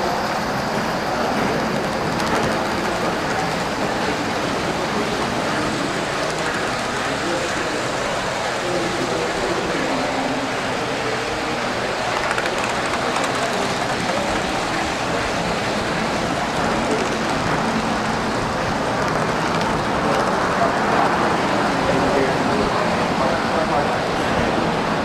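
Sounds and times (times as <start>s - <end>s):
model train wheels rumbling on rails: 0.0s - 25.0s
murmuring voices in a hall: 0.0s - 25.0s.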